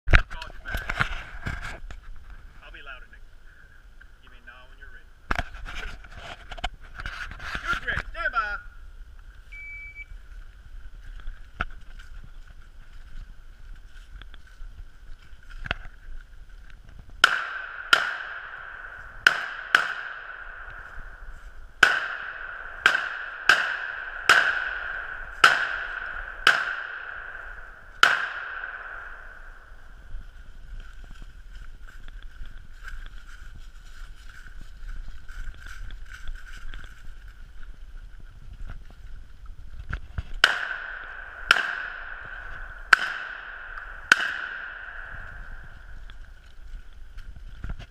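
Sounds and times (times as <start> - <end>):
shotgun shots: 17.2 - 29.8, 40.4 - 45.9.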